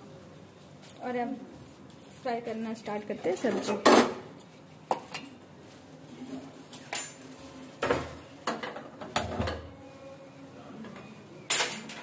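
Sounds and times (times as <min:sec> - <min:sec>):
metal pots and utensils clinking: 0:06.8 - 0:09.6.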